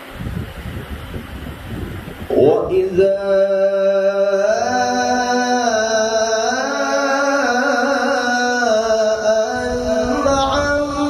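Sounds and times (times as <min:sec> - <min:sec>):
man reciting melodically into microphone: 0:02.3 - 0:11.0.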